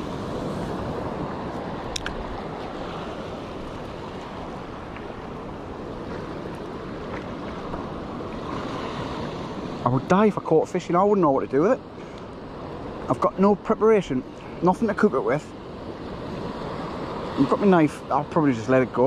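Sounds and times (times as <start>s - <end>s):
sea surf breaking on rocks: 0.0s - 19.0s
sharp click: 1.9s - 2.2s.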